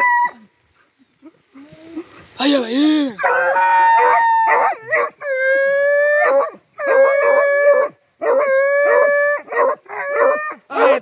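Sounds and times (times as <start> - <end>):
dogs yelping: 1.2 - 11.0
hounds howling: 3.1 - 11.0.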